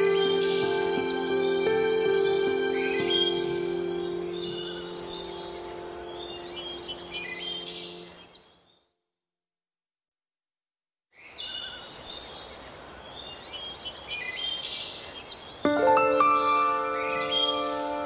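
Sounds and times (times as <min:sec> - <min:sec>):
ambient music chord: 0:00.0 - 0:08.2, 0:15.7 - 0:18.0
birdsong chirping: 0:00.0 - 0:08.9, 0:11.2 - 0:18.0.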